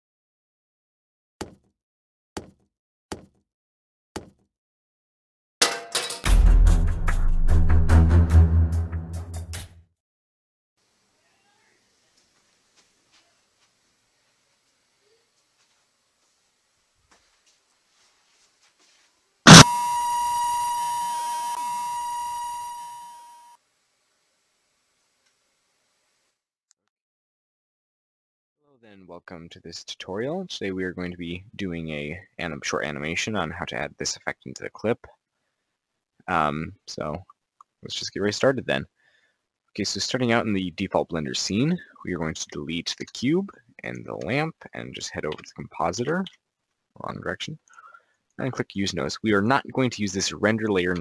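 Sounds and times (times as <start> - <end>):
sharp knock sound effects: 19.5 - 19.8
stun grenade bang: 19.5 - 20.0
high-pitched ear-ringing whine: 19.5 - 23.6.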